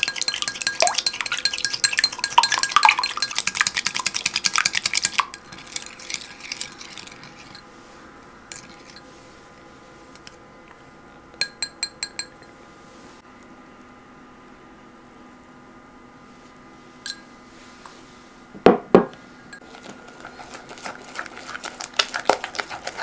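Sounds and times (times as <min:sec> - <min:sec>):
whisk clinking against glass bowl: 0:00.0 - 0:07.6, 0:11.4 - 0:12.5.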